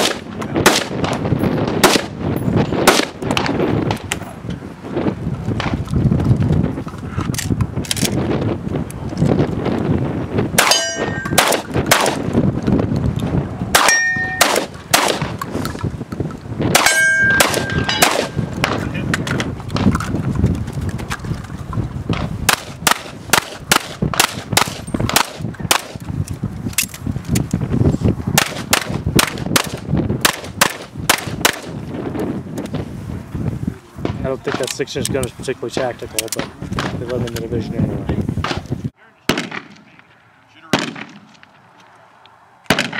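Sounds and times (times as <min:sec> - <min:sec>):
pistol shots: 0:00.0 - 0:02.2, 0:02.8 - 0:04.2, 0:10.6 - 0:12.3, 0:13.7 - 0:15.4, 0:16.7 - 0:18.9, 0:22.5 - 0:26.0, 0:28.4 - 0:31.7, 0:39.3 - 0:40.0, 0:40.7 - 0:41.5, 0:42.7 - 0:42.9
shotgun shots: 0:00.0 - 0:02.2, 0:02.8 - 0:03.6, 0:10.6 - 0:12.3, 0:13.7 - 0:15.4, 0:16.7 - 0:19.0, 0:22.5 - 0:26.0, 0:28.4 - 0:31.8, 0:39.3 - 0:40.1, 0:40.7 - 0:41.5, 0:42.7 - 0:42.9
steel targets ringing: 0:10.6 - 0:11.5, 0:13.8 - 0:14.7, 0:16.8 - 0:18.4.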